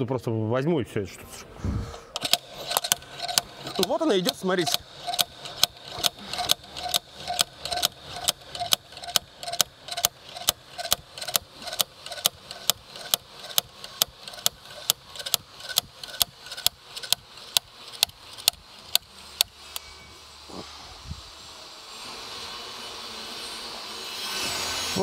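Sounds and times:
ratchet wrench clicking: 2.2s - 19.9s.

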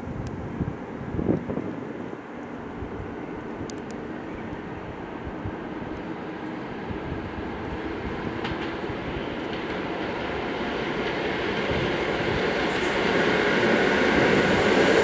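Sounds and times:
train wheels rumbling: 3.0s - 15.0s.

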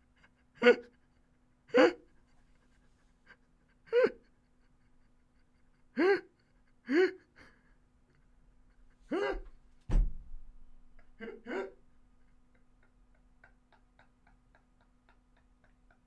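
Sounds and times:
person's wordless vocal outbursts: 1.7s - 2.1s, 6.0s - 7.3s, 9.1s - 9.5s, 11.2s - 11.8s
loud thump: 9.9s - 10.5s.

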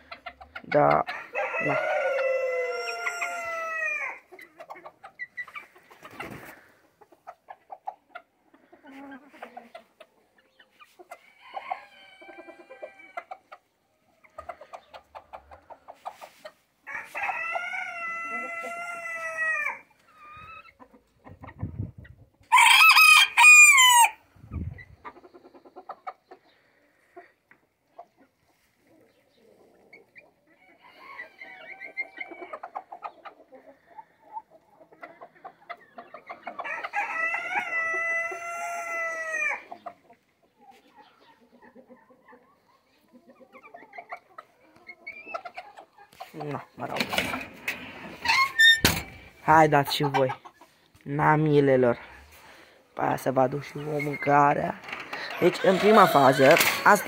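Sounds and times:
hens clucking: 0.0s - 22.7s, 23.4s - 57.0s
roosters crowing: 1.0s - 4.3s, 11.2s - 13.3s, 16.8s - 19.9s, 22.5s - 24.3s, 30.6s - 32.6s, 36.6s - 39.7s, 46.9s - 49.4s, 54.6s - 57.0s.

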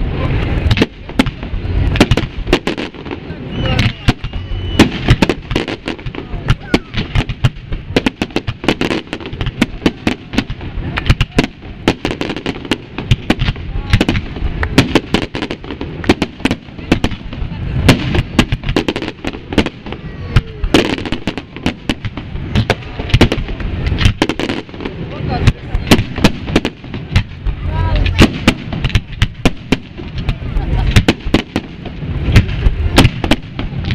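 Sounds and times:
fireworks bangs: 0.0s - 33.9s
low rumble: 15.6s - 33.9s.

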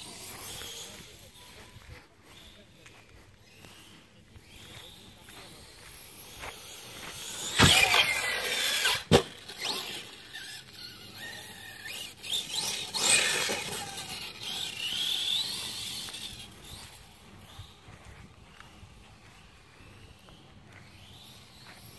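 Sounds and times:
electric motor whining: 6.6s - 17.8s
loud thump: 7.6s - 8.0s.

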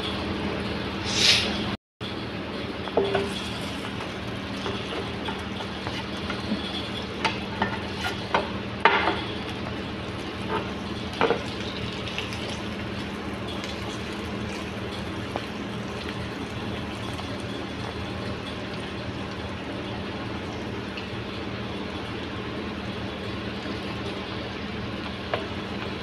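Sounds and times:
metal utensil scraping pan: 4.6s - 8.4s.

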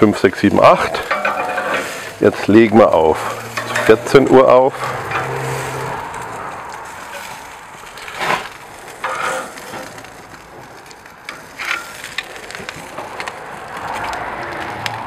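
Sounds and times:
fish sizzling on a grill: 0.0s - 15.0s
metal tongs clacking and scraping: 0.8s - 10.1s.

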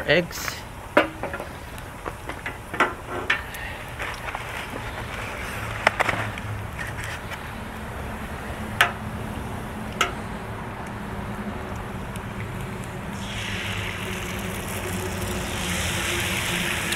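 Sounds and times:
food sizzling on a griddle: 13.2s - 16.9s.

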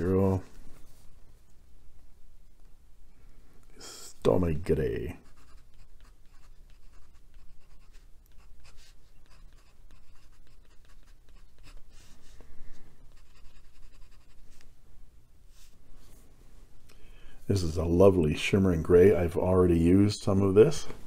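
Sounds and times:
pen nib scratching on paper: 5.2s - 12.2s, 13.1s - 14.6s.

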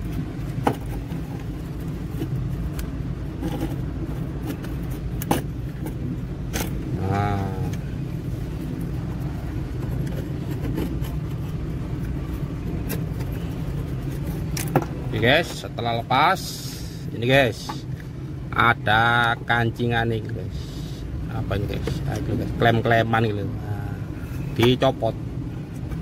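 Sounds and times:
vehicle engine idling: 0.0s - 26.0s.

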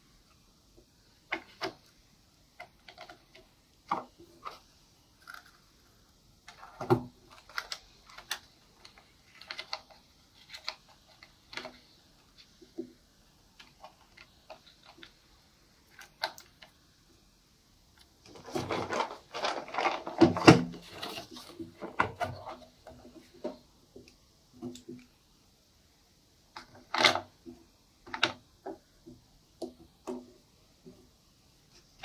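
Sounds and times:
plastic box rattling: 18.3s - 22.6s.

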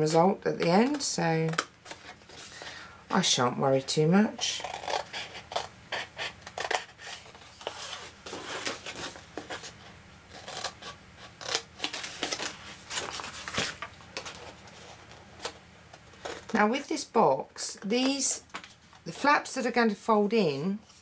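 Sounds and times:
stiff card rustling: 4.7s - 16.8s.

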